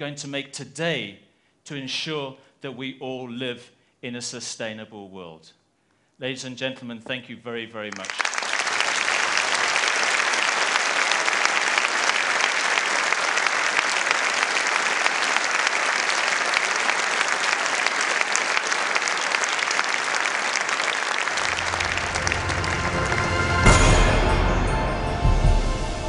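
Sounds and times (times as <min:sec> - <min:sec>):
audience applauding: 0:07.9 - 0:24.8
low music tones: 0:21.4 - 0:26.0.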